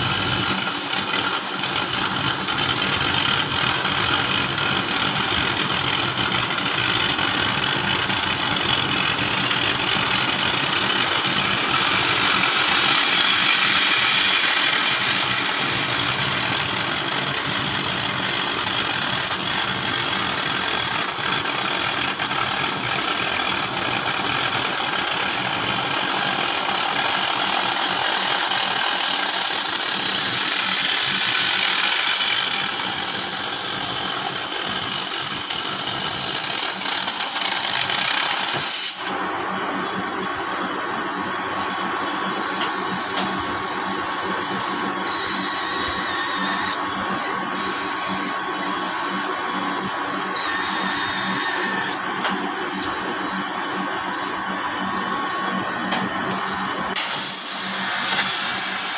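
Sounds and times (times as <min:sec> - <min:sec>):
cutting torch hissing: 0:00.0 - 0:39.1, 0:56.9 - 0:58.9.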